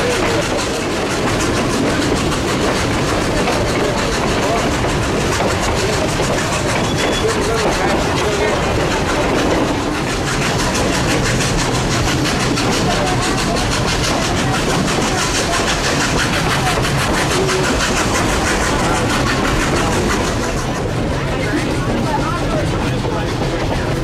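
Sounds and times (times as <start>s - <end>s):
steam train running: 0.0s - 24.0s.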